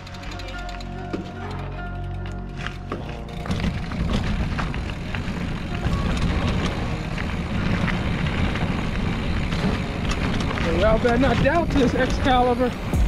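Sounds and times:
tyres clicking and rattling: 0:00.0 - 0:12.9
mountain bike rolling on dirt: 0:00.0 - 0:13.0.

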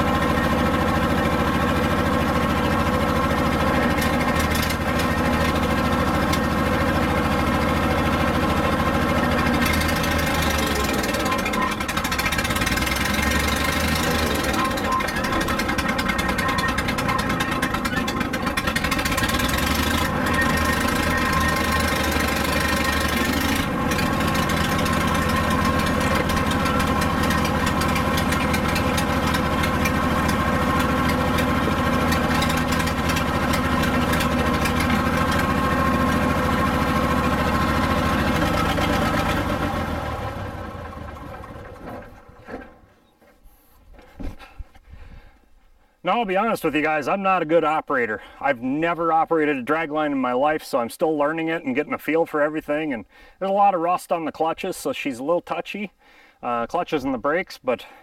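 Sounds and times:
crane engine running under load: 0:00.0 - 0:42.6.

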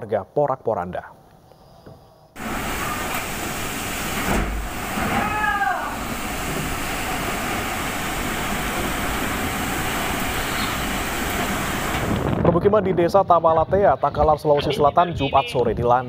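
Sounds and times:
strong wind and heavy rain: 0:02.4 - 0:13.1
brief pitched cry: 0:05.1 - 0:06.0.

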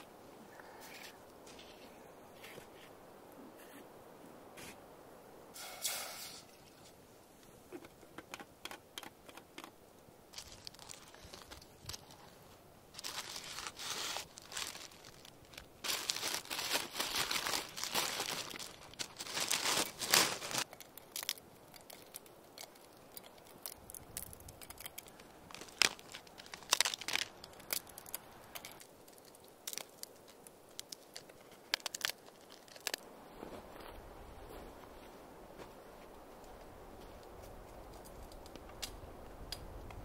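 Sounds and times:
paper and wax sheets crinkling: 0:10.3 - 0:33.0
small clicks and rustles: 0:18.5 - 0:33.0.

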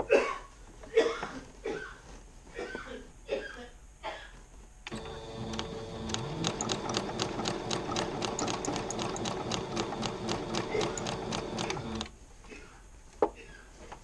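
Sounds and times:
needle stitching ticks: 0:04.9 - 0:12.1
sewing machine motor running: 0:04.9 - 0:12.1.

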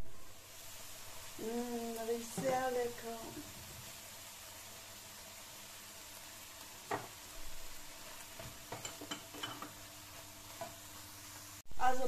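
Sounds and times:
vegetables sizzling in a frying pan: 0:00.0 - 0:12.0
spoon knocking and scraping pan: 0:02.3 - 0:02.8, 0:06.8 - 0:07.2, 0:08.0 - 0:10.9.

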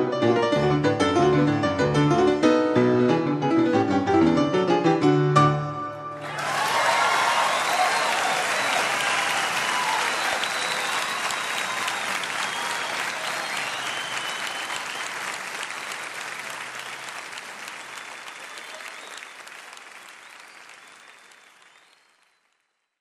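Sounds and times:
audience applauding: 0:06.2 - 0:23.0.

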